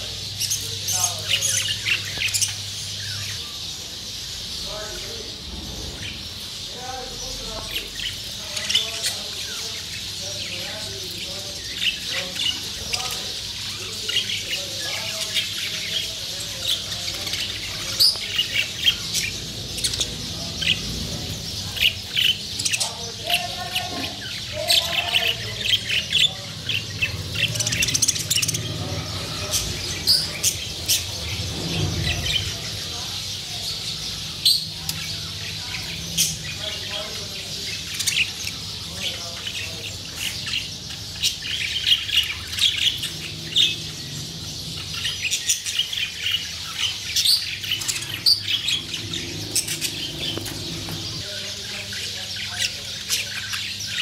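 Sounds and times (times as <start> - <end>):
budgerigars chirping and warbling: 0.0 - 54.0
steady low hum: 40.4 - 51.4.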